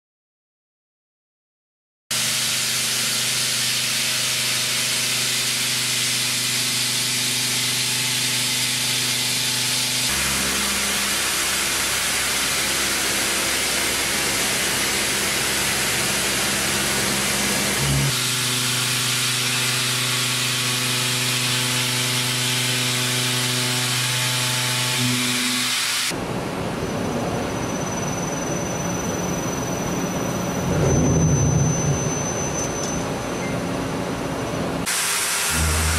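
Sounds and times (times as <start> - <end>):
hiss of milling cut: 2.1 - 26.1, 34.9 - 35.9
machine hum: 2.1 - 35.9.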